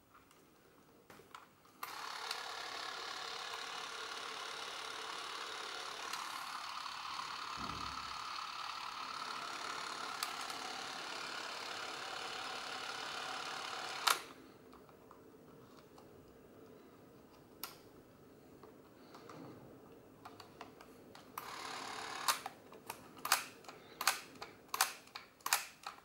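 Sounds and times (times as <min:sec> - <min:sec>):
film camera motor whirring: 0:01.8 - 0:14.4, 0:21.2 - 0:24.9.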